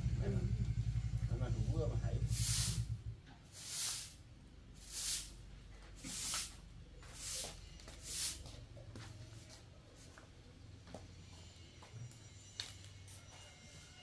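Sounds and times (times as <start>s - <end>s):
broom sweeping concrete floor: 2.2s - 10.2s.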